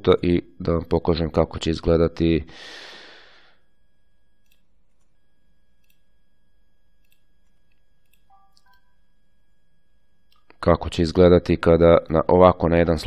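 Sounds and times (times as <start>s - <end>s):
faint electrical hum: 0.0s - 13.0s
computer mouse clicks: 4.4s - 5.1s, 5.8s - 6.0s, 7.0s - 8.9s.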